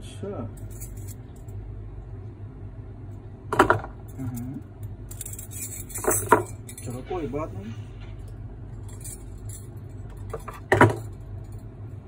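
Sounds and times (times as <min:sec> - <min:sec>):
steady low hum: 0:00.0 - 0:12.0
bangles clinking and jangling: 0:00.6 - 0:01.6, 0:04.1 - 0:07.0, 0:08.7 - 0:11.8.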